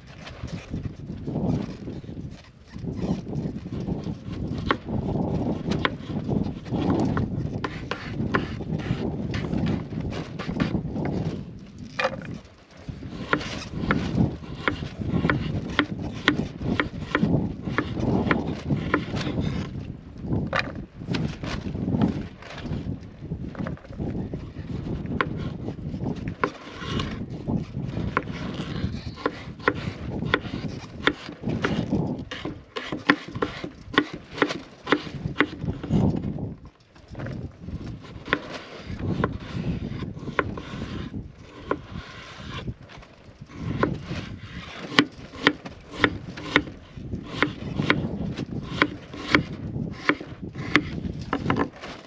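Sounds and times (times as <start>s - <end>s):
knife scraping: 26.4s - 35.7s, 37.8s - 42.7s, 43.5s - 52.0s
knife chopping on cutting board: 48.6s - 51.6s.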